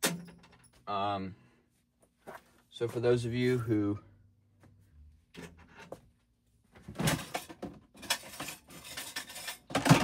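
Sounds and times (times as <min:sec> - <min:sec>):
objects rustling and clattering: 0:05.3 - 0:10.0.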